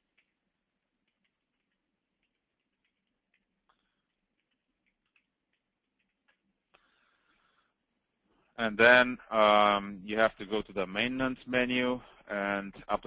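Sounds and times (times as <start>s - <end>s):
computer keyboard keystrokes: 0.0s - 6.5s.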